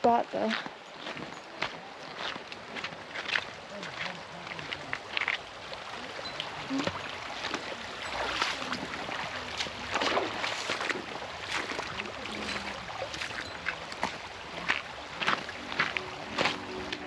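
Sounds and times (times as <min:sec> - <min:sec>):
running water rushing: 0:00.0 - 0:17.0
footsteps crunching on gravel: 0:00.4 - 0:05.5, 0:10.6 - 0:17.0.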